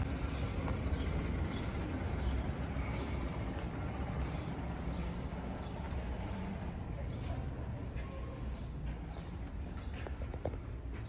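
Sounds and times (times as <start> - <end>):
footsteps on stone paving: 3.5 - 11.0.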